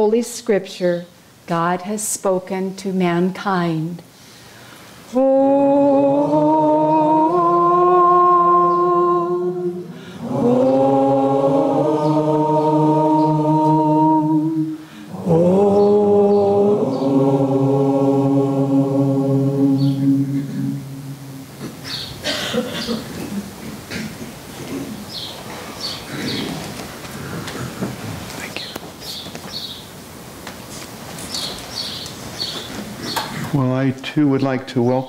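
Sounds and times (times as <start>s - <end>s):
woman chanting long notes: 5.1s - 21.8s
low drone: 5.2s - 22.3s.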